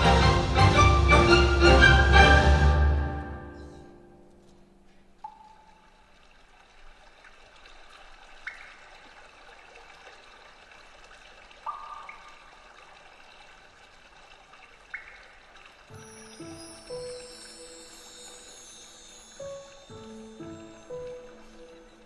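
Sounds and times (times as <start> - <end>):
flowing water sound: 0.0 - 22.0
ringing bell-like notes: 15.9 - 22.0.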